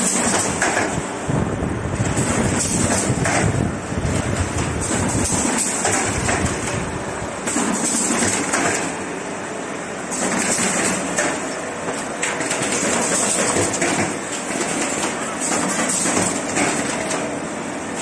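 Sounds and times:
machine clattering and knocking: 0:00.0 - 0:01.1, 0:02.0 - 0:09.0, 0:10.1 - 0:17.4.

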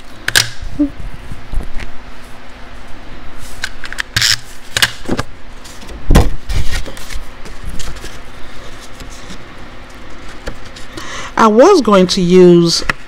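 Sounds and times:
cardstock rustling and sliding: 0:05.1 - 0:10.9.

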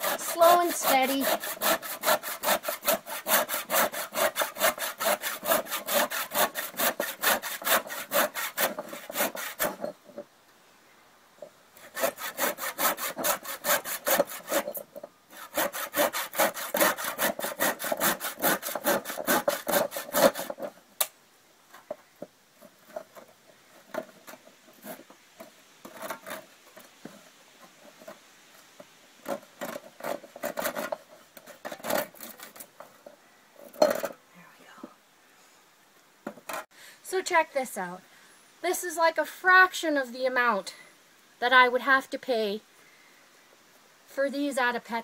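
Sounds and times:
handsaw rasping through bone: 0:00.0 - 0:09.8, 0:11.8 - 0:14.8, 0:15.4 - 0:20.7.

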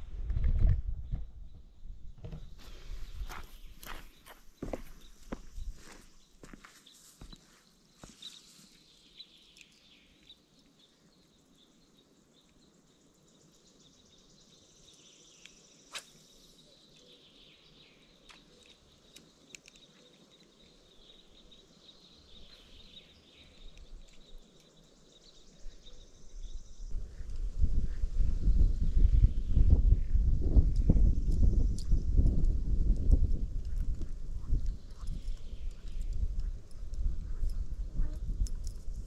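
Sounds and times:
birdsong chirps: 0:00.9 - 0:39.0
sharp clicks: 0:18.3 - 0:20.5.

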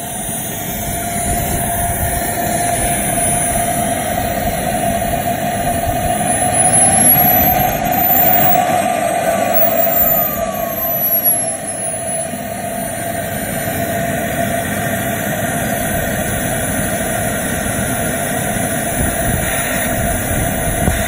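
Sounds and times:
model jet turbine whine: 0:00.0 - 0:21.0
rushing exhaust noise: 0:00.0 - 0:21.0.

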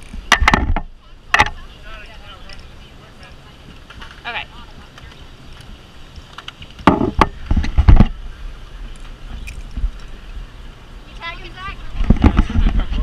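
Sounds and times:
knocks and thumps: 0:00.2 - 0:01.6, 0:06.8 - 0:08.2.

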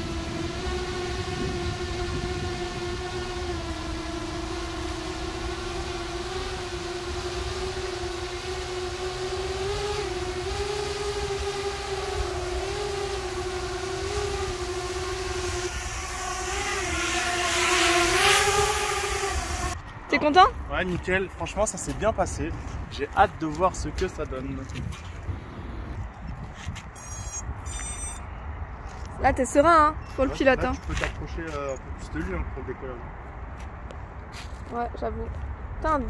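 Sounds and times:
drone buzzing hum: 0:00.0 - 0:20.5, 0:25.2 - 0:26.3, 0:26.9 - 0:28.3.

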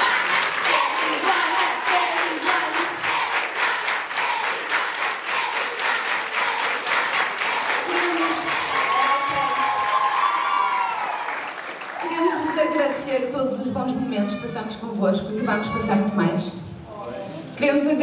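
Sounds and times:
crowd clapping in rhythm: 0:00.0 - 0:12.5
high voices cheering: 0:07.4 - 0:13.0.

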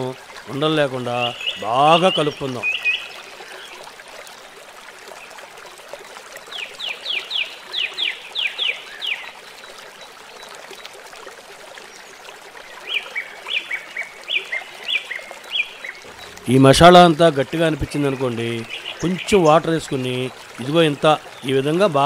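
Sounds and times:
bird calling: 0:01.0 - 0:03.8, 0:12.8 - 0:22.0.

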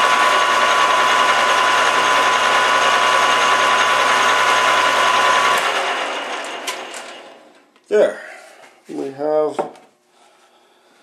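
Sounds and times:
metal lathe whining: 0:00.0 - 0:07.4.

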